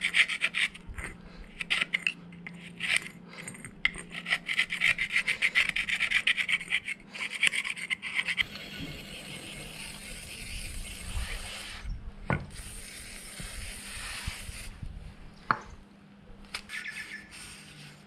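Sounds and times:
screwdriver scraping steel: 0:00.0 - 0:11.9.

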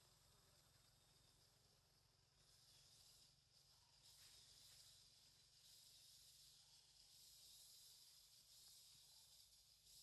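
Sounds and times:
faint high-pitched hiss: 0:00.0 - 0:10.0.

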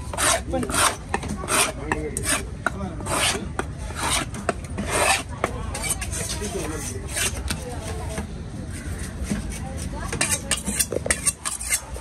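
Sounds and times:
knife scraping: 0:00.0 - 0:12.0.

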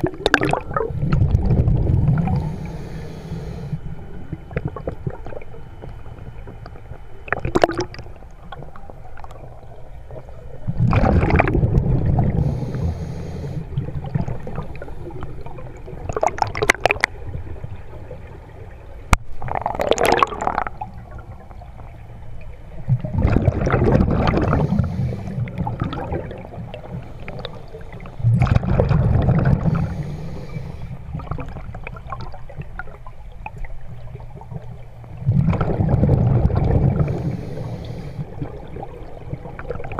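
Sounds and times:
exhaled bubbles gurgling: 0:00.0 - 0:39.9
scuba regulator breathing: 0:02.3 - 0:04.0, 0:12.3 - 0:13.9, 0:24.4 - 0:25.6, 0:29.6 - 0:31.1, 0:37.0 - 0:38.4.

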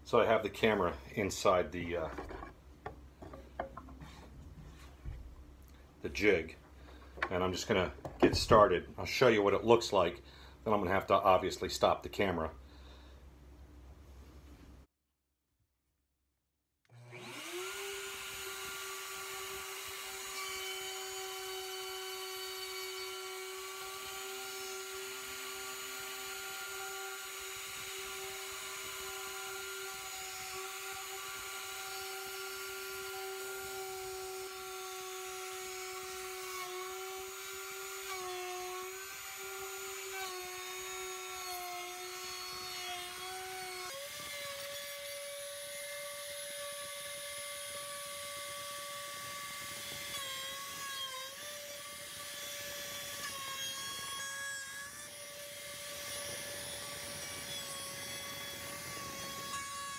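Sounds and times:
electric router whining: 0:17.0 - 0:50.7.

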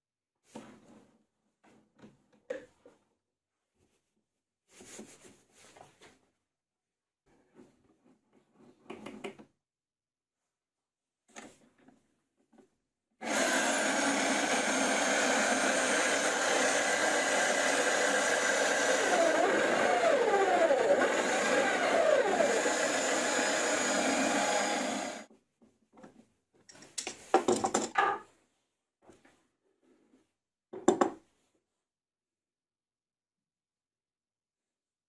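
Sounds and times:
drill press motor running: 0:13.2 - 0:25.3.

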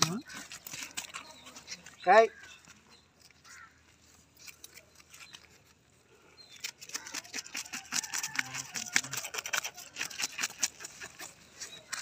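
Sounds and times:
knife scraping fish scales: 0:06.5 - 0:12.0.

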